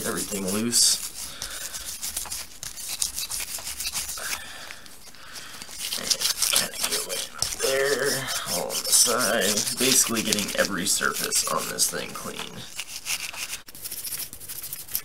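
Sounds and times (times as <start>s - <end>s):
person speaking: 0.0s - 2.2s, 3.9s - 13.6s
brush scrubbing metal: 0.0s - 15.0s.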